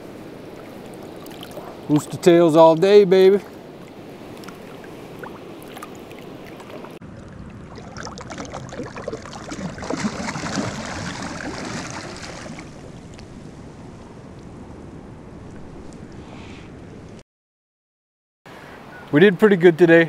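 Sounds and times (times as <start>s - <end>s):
shallow river flowing over stones: 0.2s - 13.0s
fish splashing at water surface: 0.6s - 2.1s, 3.8s - 13.1s.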